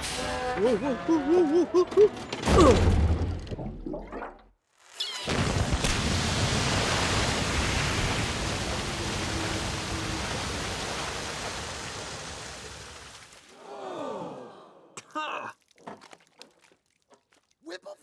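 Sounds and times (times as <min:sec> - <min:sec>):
water splashing on mud: 0:05.4 - 0:13.6, 0:15.6 - 0:17.7
water jet rushing spray: 0:05.8 - 0:13.5.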